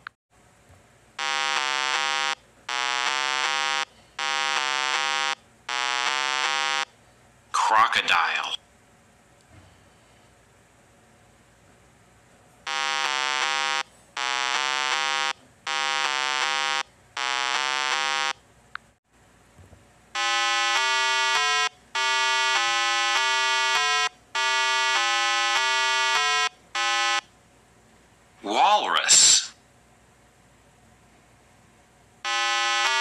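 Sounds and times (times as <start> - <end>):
buzzy chiptune electronic tones: 1.2 - 6.9, 12.7 - 18.4, 20.2 - 27.2, 32.3 - 33.0.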